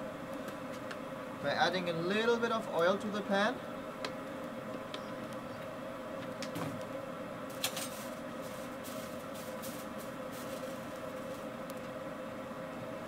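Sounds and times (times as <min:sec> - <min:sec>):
forge air blower hum: 0:00.0 - 0:13.0
light crackles: 0:07.5 - 0:12.0.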